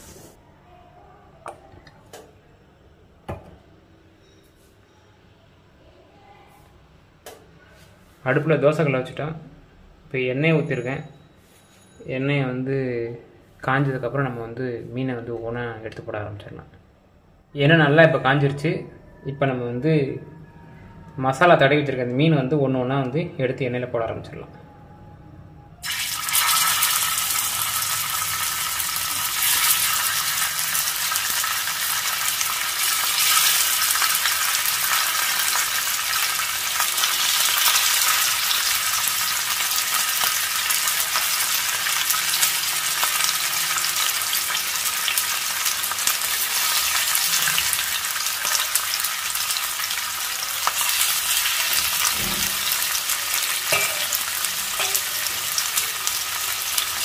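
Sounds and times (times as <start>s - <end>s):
fish sizzling in hot oil: 25.8s - 57.0s.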